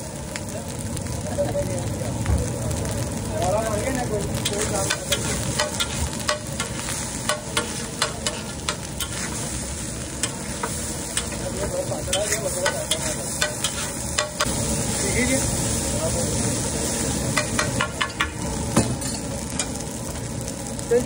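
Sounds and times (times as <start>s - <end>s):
frying sizzle: 0.0s - 21.0s
metal spatula scraping griddle: 4.4s - 14.4s.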